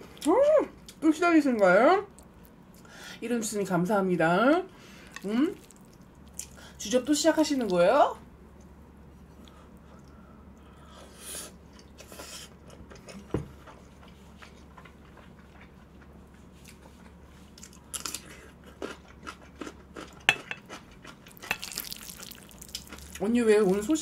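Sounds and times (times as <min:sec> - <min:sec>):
faint low hum: 0:00.0 - 0:24.0
chewing with crunchy bites: 0:04.9 - 0:06.8, 0:11.6 - 0:24.0.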